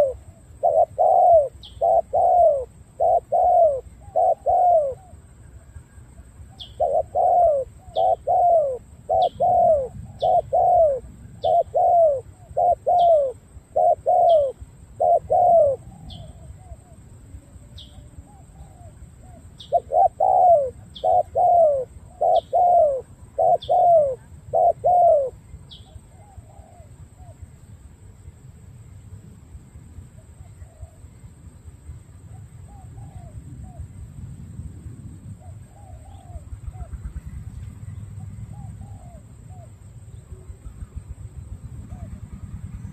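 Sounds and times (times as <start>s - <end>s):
dove cooing: 0.0s - 27.4s, 32.7s - 33.8s, 38.2s - 41.0s, 41.7s - 42.4s.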